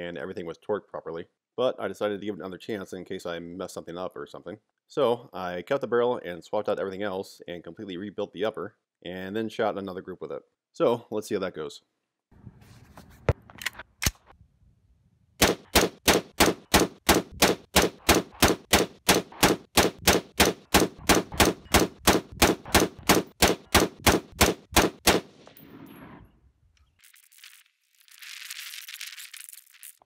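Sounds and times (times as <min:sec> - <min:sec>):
rifle shots: 0:15.4 - 0:25.9.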